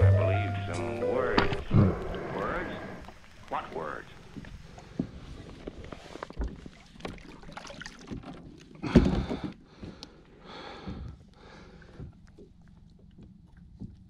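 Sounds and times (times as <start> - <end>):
scraping in kayak: 0.8 - 7.3.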